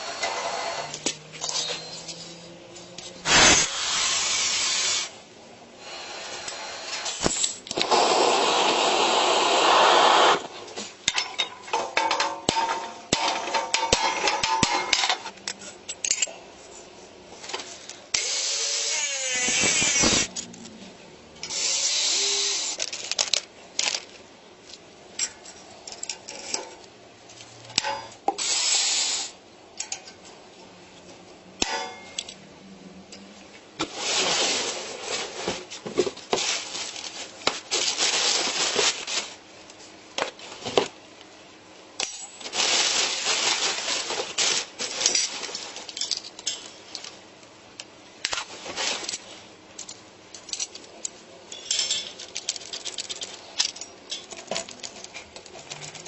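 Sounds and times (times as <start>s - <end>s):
metal parts clinking on bench: 1.0s - 2.5s, 11.1s - 16.4s, 45.0s - 47.2s, 49.8s - 56.0s
scraping or rustling: 33.8s - 39.4s, 42.4s - 46.2s, 48.4s - 49.4s.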